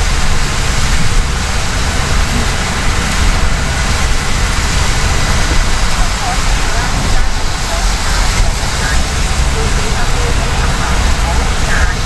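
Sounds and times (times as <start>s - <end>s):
rain on car windscreen: 0.0s - 12.0s
tyres on wet road: 0.0s - 12.0s.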